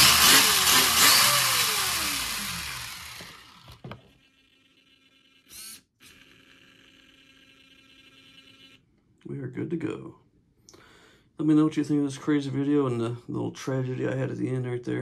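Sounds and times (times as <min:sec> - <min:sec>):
brief whir: 0:00.0 - 0:08.8
electric motor winding down: 0:00.0 - 0:08.8.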